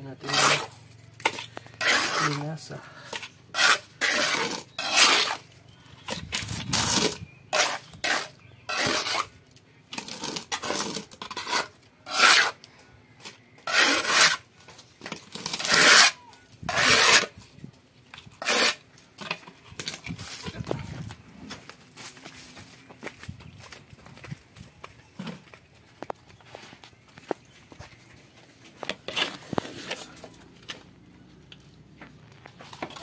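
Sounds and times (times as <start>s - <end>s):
trowel scraping wet mortar: 0.1s - 17.4s, 18.1s - 20.7s, 28.8s - 30.3s.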